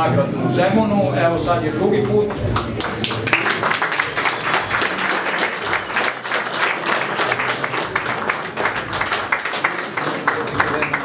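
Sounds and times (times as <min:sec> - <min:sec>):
audience applauding: 0:02.0 - 0:11.0.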